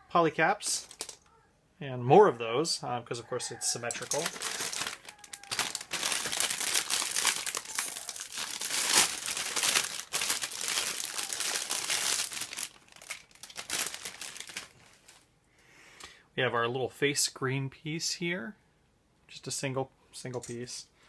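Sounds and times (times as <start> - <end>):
plastic bag crinkling: 0.7 - 1.3, 3.9 - 15.3.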